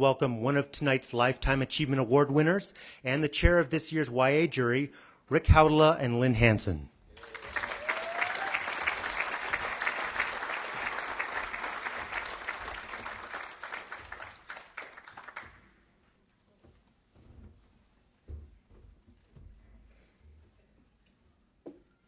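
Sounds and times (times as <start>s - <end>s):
audience applauding: 7.2s - 15.7s.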